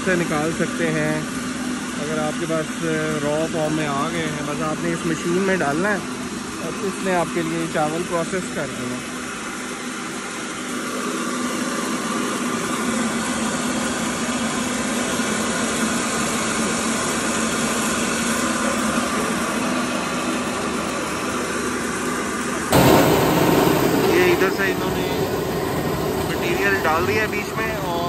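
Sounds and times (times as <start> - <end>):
motor hum: 0.0 - 28.0.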